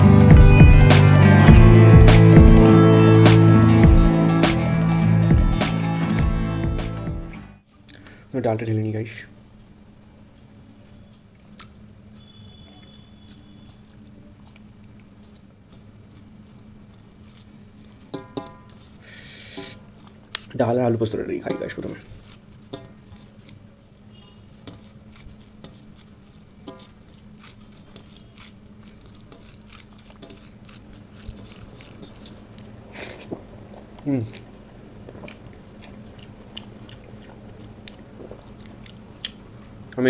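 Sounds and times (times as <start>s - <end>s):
steady low hum: 9.2s - 40.0s
chewing: 12.8s - 20.5s, 21.8s - 40.0s
person biting food: 18.8s - 20.5s, 24.6s - 39.4s
fingers mixing rice on metal plate: 21.4s - 23.7s, 24.5s - 34.5s.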